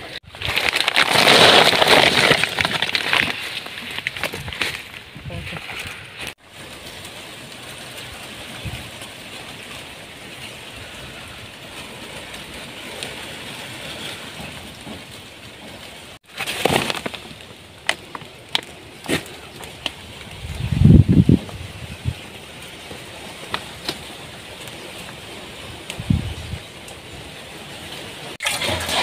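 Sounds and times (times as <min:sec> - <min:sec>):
dry vegetation crackling: 0:00.0 - 0:29.0
steady outdoor hiss: 0:03.4 - 0:29.0.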